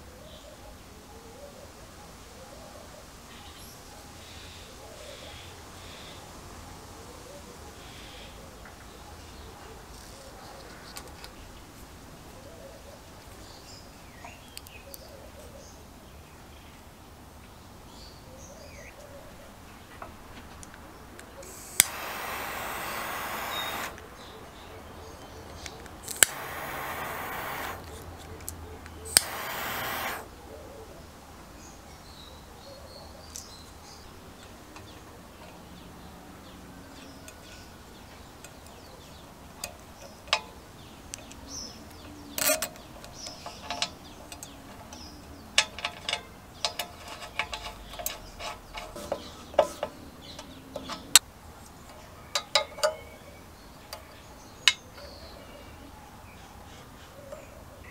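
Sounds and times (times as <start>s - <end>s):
jet lighter hissing: 21.4s - 24.0s, 26.0s - 28.0s, 29.0s - 30.3s
small sharp clicks of connectors: 21.4s - 24.0s, 25.5s - 30.3s.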